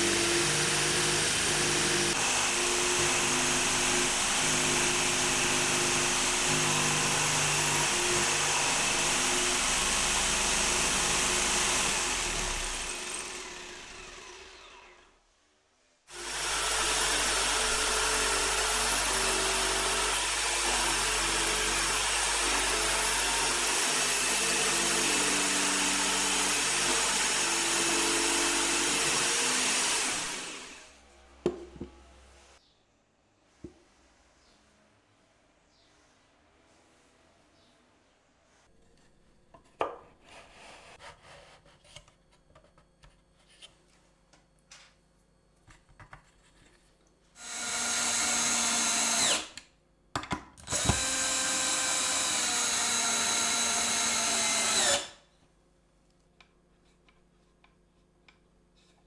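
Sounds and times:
jigsaw cutting plywood: 0:00.0 - 0:15.1, 0:16.1 - 0:31.0, 0:47.4 - 0:49.6, 0:50.7 - 0:55.2.

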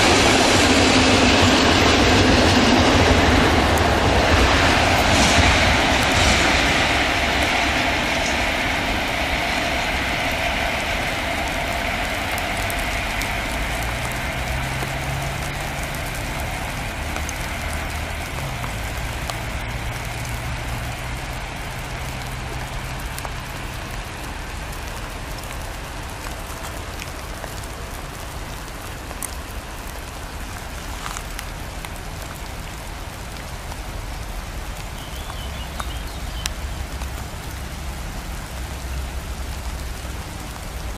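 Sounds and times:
freight train rolling: 0:00.0 - 0:40.9
rain hissing: 0:00.0 - 0:40.9.

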